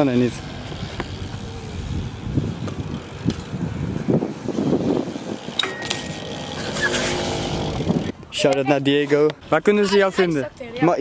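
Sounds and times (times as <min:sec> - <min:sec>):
bike rolling on concrete: 0:00.0 - 0:11.0
metallic clank and scrape: 0:05.6 - 0:07.7.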